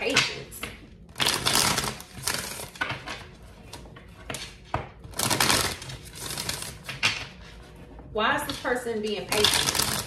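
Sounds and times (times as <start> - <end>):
cards being shuffled: 1.1 - 7.5, 9.3 - 10.0.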